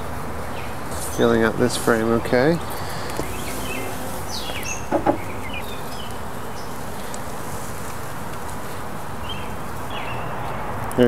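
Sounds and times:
honeybees buzzing: 0.0s - 10.6s
quick knocks: 4.8s - 5.5s.

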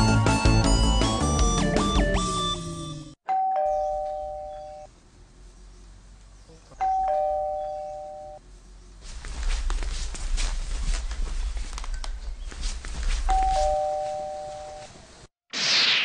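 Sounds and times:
doorbell chiming ding-dong: 3.3s - 4.9s, 6.8s - 8.4s, 13.3s - 14.8s.

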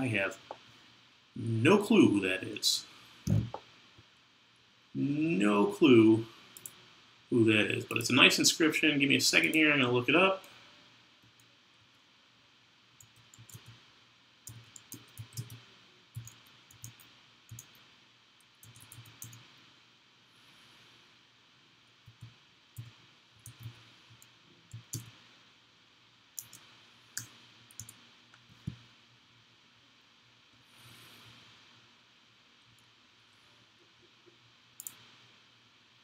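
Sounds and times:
computer keyboard typing: 13.0s - 13.8s, 14.5s - 15.6s, 16.2s - 17.8s, 18.6s - 19.5s, 22.0s - 25.1s, 26.4s - 26.6s, 27.2s - 28.0s.

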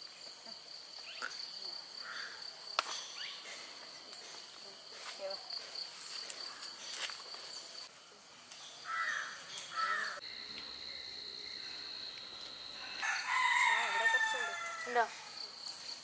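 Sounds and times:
insects droning: 0.0s - 16.0s
crow cawing: 2.0s - 2.4s, 8.8s - 10.2s
rooster crowing: 13.0s - 15.3s.

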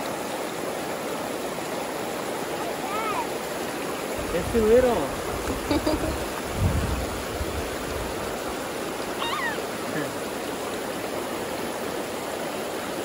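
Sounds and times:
creek water running over stones: 0.0s - 13.0s.

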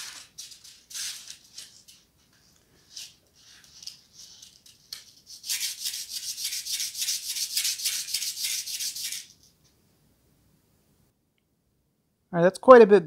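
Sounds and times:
sandpaper rasping on metal contact: 5.1s - 9.3s.

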